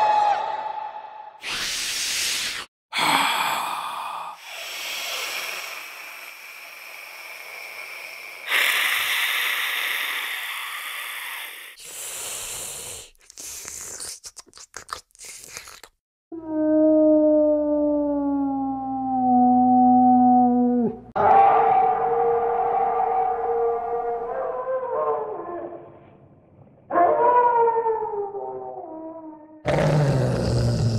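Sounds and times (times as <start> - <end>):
raspy creature hisses: 1.4 - 15.8
short choppy gasps: 11.8 - 15.9.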